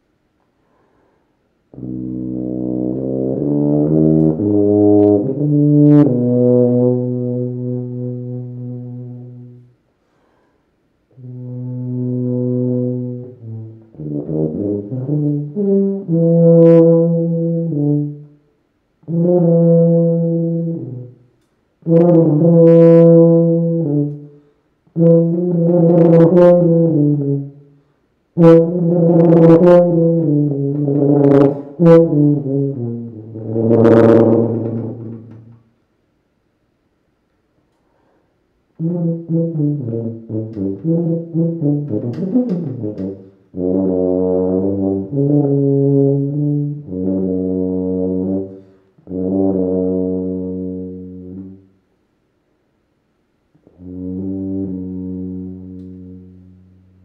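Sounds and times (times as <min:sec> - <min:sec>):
solo tuba playing: 0:01.7 - 0:09.9, 0:11.1 - 0:35.6, 0:38.7 - 0:51.8, 0:53.6 - 0:57.0.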